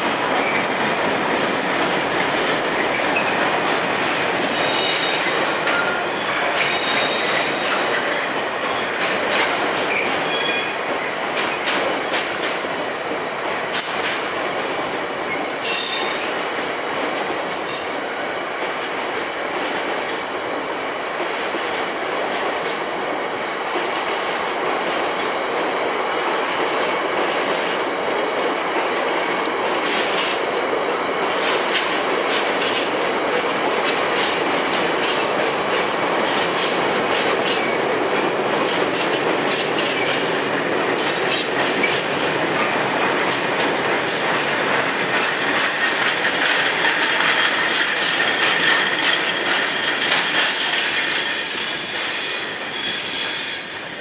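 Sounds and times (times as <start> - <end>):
wheels clicking over rail joints: 0.0 - 8.3, 9.0 - 17.9, 31.1 - 51.7
train wagons rolling past: 0.0 - 54.0.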